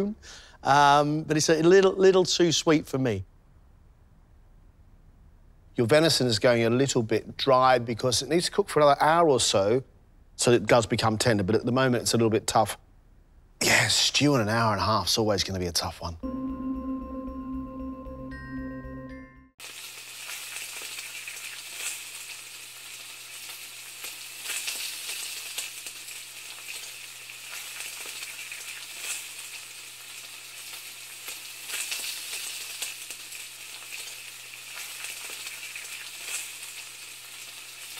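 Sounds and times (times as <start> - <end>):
music: 16.2 - 19.6
frying sizzle with crackles: 19.6 - 37.9.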